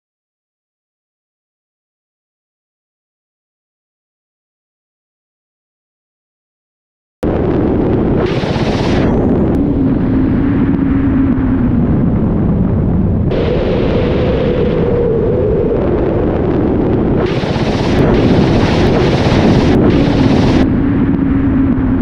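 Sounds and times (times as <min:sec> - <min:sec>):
rockets firing with rushing hiss: 0:07.2 - 0:12.5, 0:13.2 - 0:21.6
helicopter rotors and turbines droning: 0:07.2 - 0:22.0.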